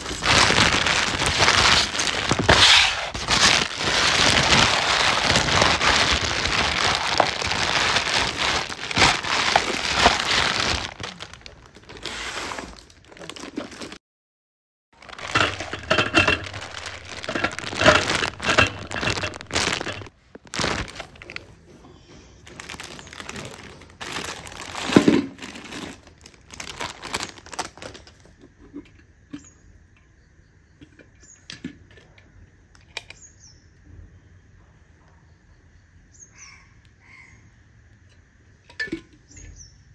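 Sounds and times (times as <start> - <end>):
plastic wrapping crinkling: 0.0 - 14.0, 15.0 - 21.6, 22.3 - 28.2.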